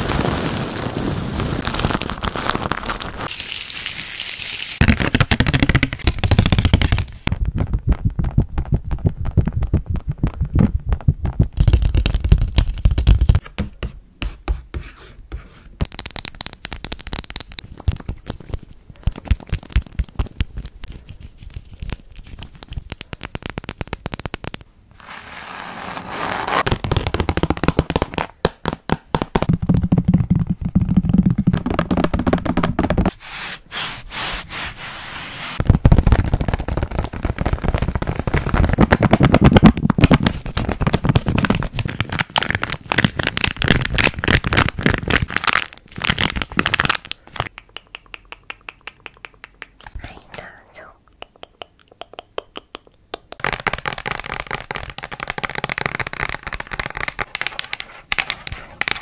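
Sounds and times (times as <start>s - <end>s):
plastic pouch crinkling: 0.0s - 7.3s, 35.5s - 47.5s
scratching and rubbing on board: 32.4s - 35.6s, 56.2s - 59.0s.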